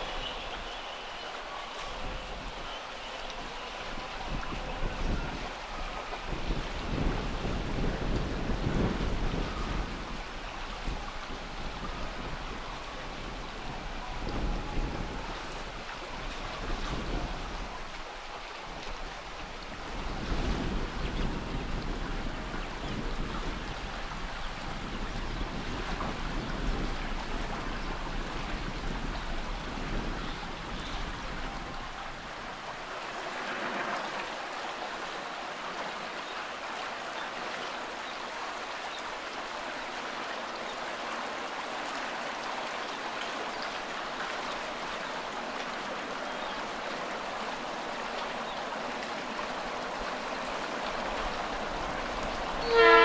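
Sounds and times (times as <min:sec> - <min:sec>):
wind rumbling on microphone: 0:00.0 - 0:53.0
wind noise: 0:01.8 - 0:34.3.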